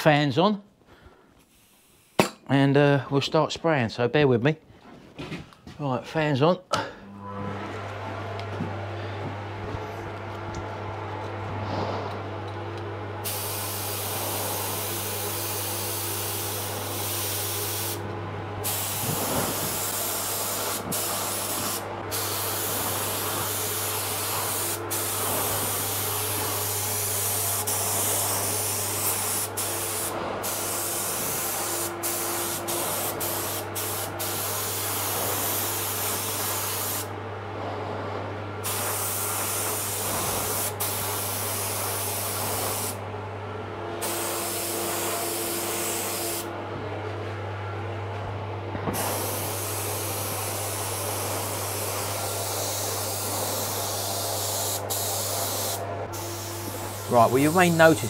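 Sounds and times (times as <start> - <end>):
low hum of fans: 2.2 - 58.0
spray gun hissing: 13.2 - 18.0, 18.6 - 37.1, 38.6 - 43.0, 44.0 - 46.5, 48.9 - 58.0.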